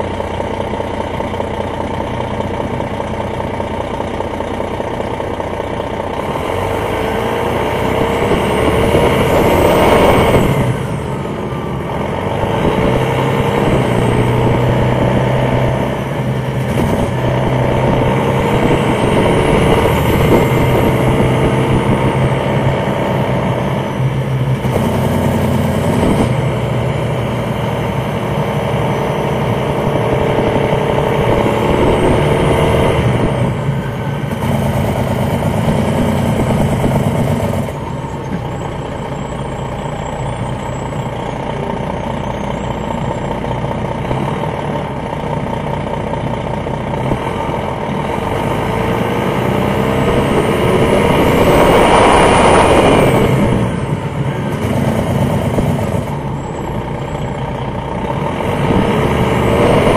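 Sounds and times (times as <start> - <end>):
bus engine running: 0.0 - 59.9
loud rushing noise: 27.7 - 37.8, 48.2 - 56.2.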